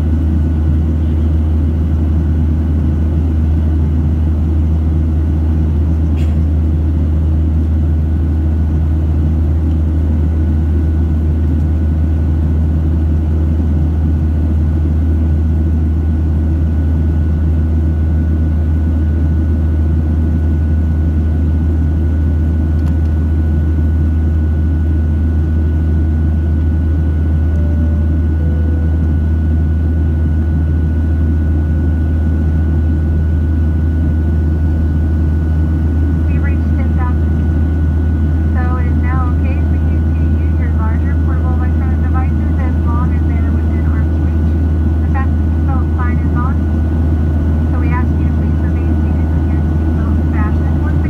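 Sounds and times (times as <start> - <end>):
airplane cabin engine drone: 0.0 - 51.0
thin steady whine: 24.0 - 51.0.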